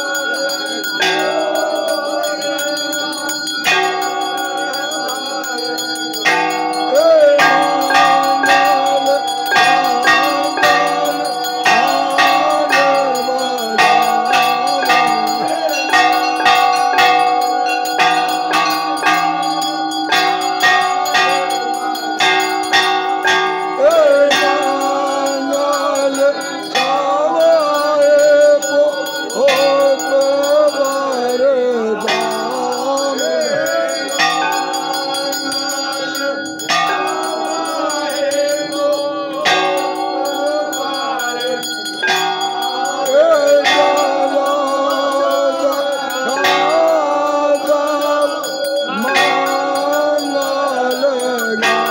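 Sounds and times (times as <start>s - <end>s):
brass bells ringing rapidly: 0.0s - 51.9s
voices singing a devotional chant: 0.0s - 51.9s.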